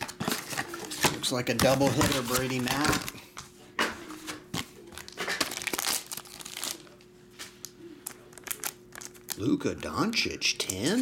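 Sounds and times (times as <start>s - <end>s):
plastic wrapping crinkling and tearing: 0.0s - 3.1s, 5.0s - 7.0s, 8.0s - 9.5s.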